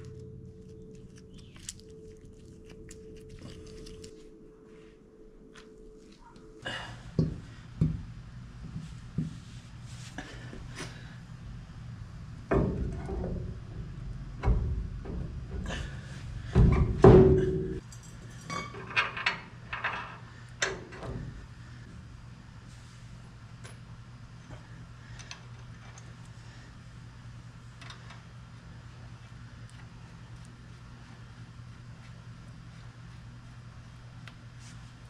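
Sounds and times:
metal clanks and knocks: 12.4s - 21.4s.

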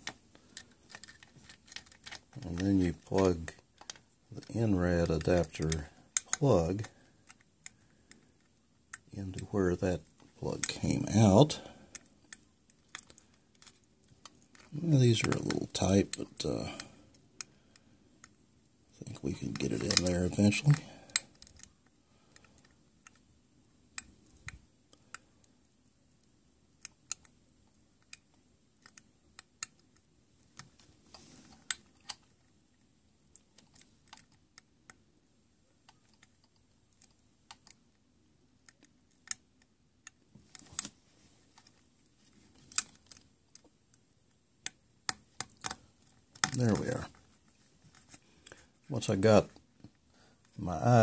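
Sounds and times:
fingers fumbling with cable: 0.0s - 9.5s, 11.9s - 17.6s, 44.6s - 48.7s.

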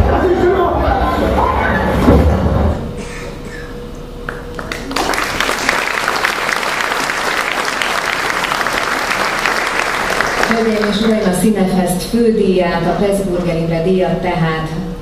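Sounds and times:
audience applauding: 4.2s - 11.4s.

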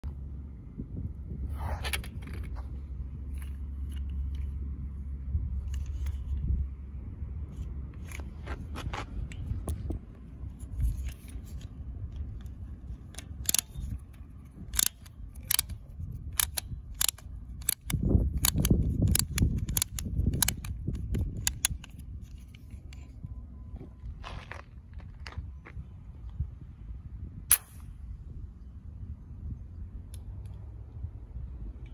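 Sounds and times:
plastic toy clicks and snaps: 13.2s - 13.9s, 14.7s - 22.5s.

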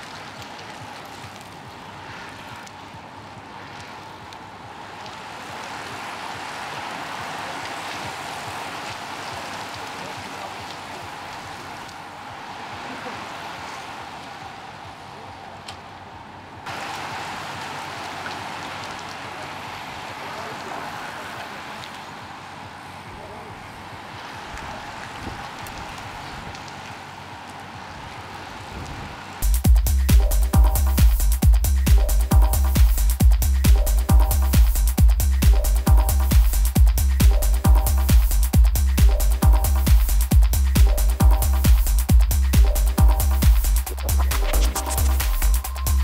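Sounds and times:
bicycle tyres and chains rushing: 0.0s - 15.3s, 15.9s - 29.4s
riders' voices: 9.2s - 11.8s, 12.7s - 15.7s, 18.8s - 25.6s.

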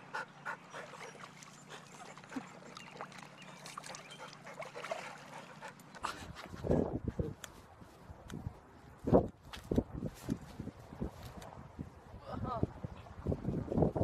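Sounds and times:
water sloshing in a tub: 0.0s - 6.2s.

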